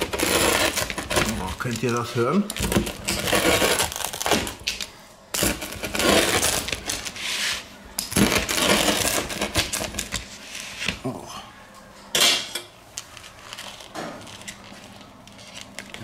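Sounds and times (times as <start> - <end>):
pizza cutter crunching crust: 0.0 - 11.0.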